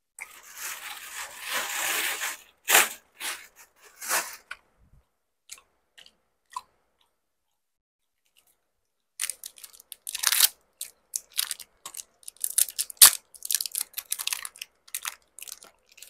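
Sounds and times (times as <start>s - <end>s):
man chewing: 5.4s - 7.6s.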